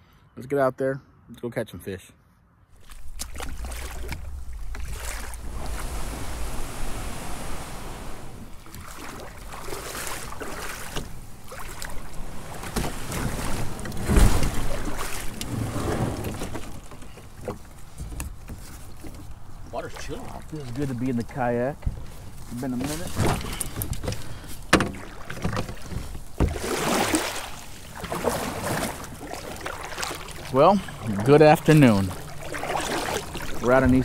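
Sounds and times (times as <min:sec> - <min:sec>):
wind rumbling on microphone: 0:02.8 - 0:19.8
water splashing around a kayak: 0:02.8 - 0:34.0.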